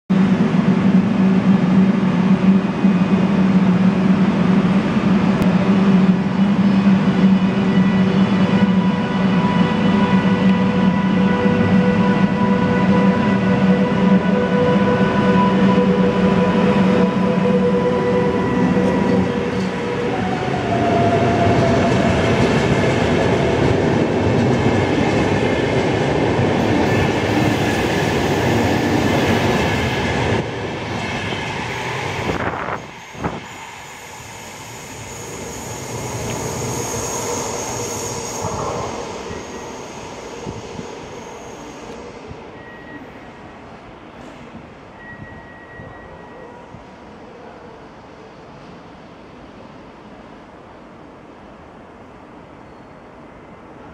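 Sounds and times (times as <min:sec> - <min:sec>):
train wheel and rail noise: 0:00.1 - 0:53.9
faint high-pitched squeal: 0:31.7 - 0:43.6, 0:44.9 - 0:47.6, 0:52.6 - 0:53.6.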